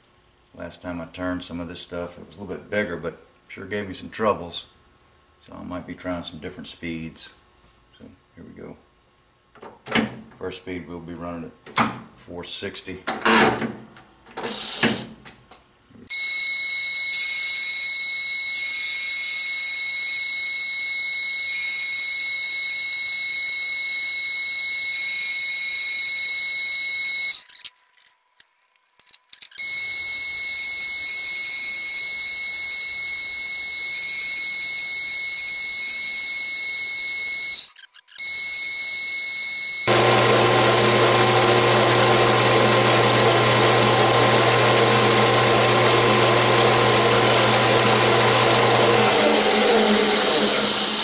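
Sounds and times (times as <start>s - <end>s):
metal lathe high-pitched whine: 16.1s - 27.4s, 29.6s - 51.0s.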